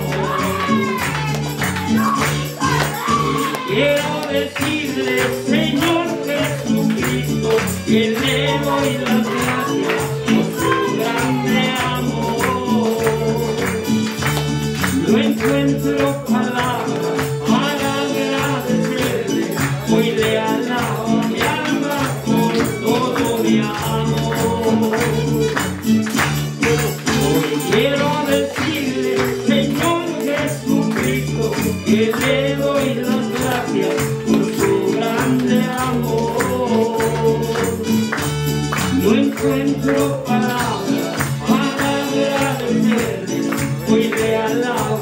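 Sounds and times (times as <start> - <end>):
worship song over loudspeaker: 0.0 - 1.3, 2.0 - 13.9, 14.8 - 25.4, 26.7 - 38.0, 38.8 - 45.0
person singing: 0.0 - 45.0
tambourine beat: 0.0 - 45.0.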